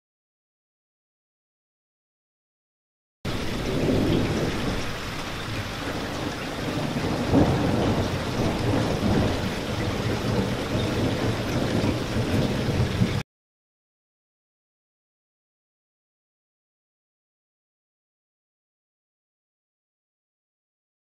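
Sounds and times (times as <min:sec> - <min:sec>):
heavy rain falling: 0:03.3 - 0:13.2
thunder rumbling: 0:03.3 - 0:13.2.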